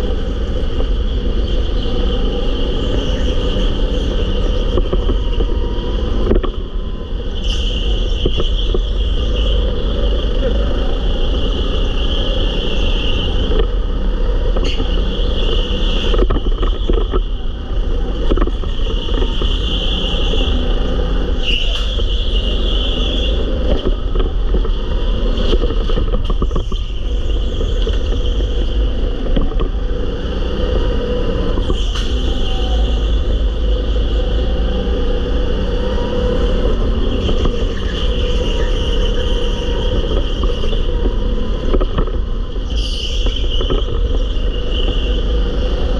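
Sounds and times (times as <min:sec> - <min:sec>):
go-kart engine running: 0:00.0 - 0:45.9
sharp clicks and knocks: 0:04.5 - 0:06.8, 0:13.4 - 0:13.8, 0:14.4 - 0:20.5, 0:21.4 - 0:29.9, 0:37.2 - 0:45.3.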